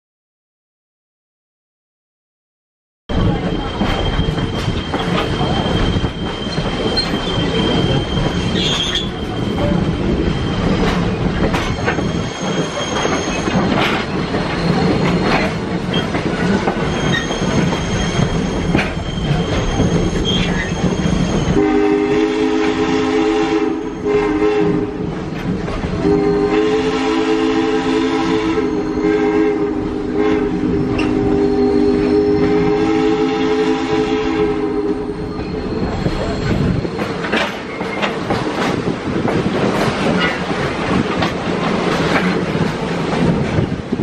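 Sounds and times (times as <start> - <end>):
train clacking over rail joints: 3.1 - 44.0
high wheel squeal: 3.2 - 21.7, 30.8 - 32.7, 34.9 - 37.9
steam locomotive whistle: 16.9 - 25.2, 26.0 - 36.0.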